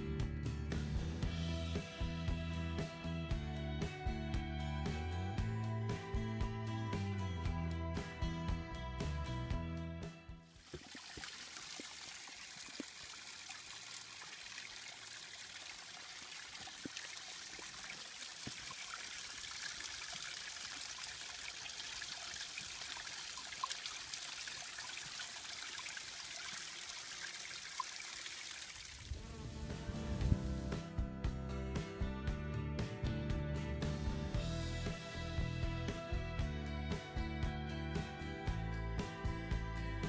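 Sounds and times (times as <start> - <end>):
water trickling over rocks: 10.4 - 29.2
faint water drips: 10.5 - 29.1.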